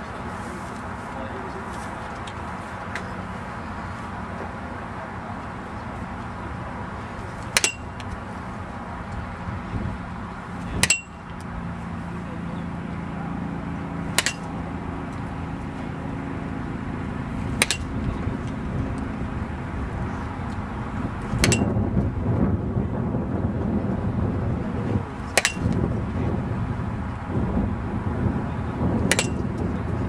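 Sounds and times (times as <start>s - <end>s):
wind rumble on microphone: 0.0s - 30.0s
bat cracking a ball: 7.4s - 8.3s, 14.1s - 14.6s, 17.5s - 18.1s, 21.4s - 21.8s, 25.3s - 25.8s, 29.1s - 29.6s.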